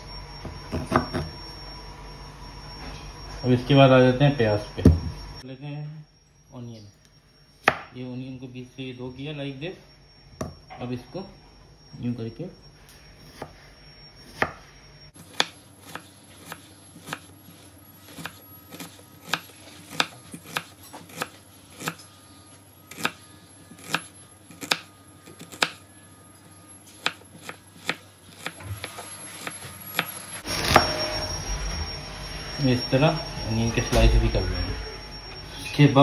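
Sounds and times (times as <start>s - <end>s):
knife chopping onion: 15.2s - 22.0s, 22.9s - 25.8s, 27.0s - 28.8s.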